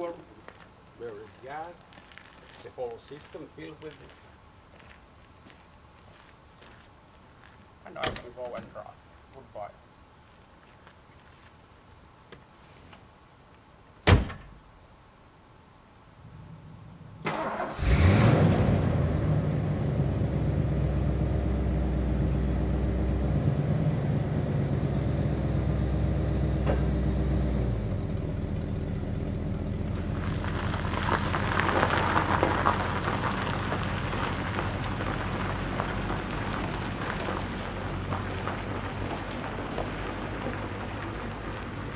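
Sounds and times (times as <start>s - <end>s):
tyres crunching on gravel: 0.0s - 8.9s, 29.4s - 41.9s
car door slamming: 14.0s - 14.6s.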